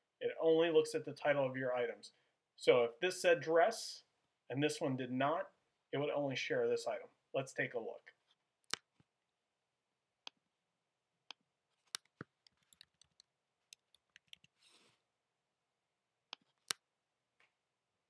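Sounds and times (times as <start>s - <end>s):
computer mouse clicks: 11.9s - 14.6s.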